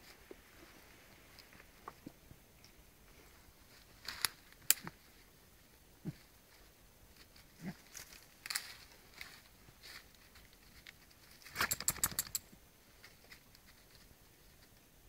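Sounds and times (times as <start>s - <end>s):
sharp clicks: 11.5s - 12.5s.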